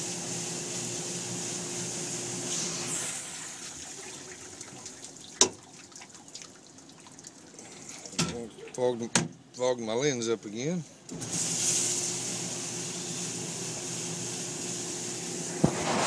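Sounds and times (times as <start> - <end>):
water spraying in dishwasher: 2.5 - 9.0.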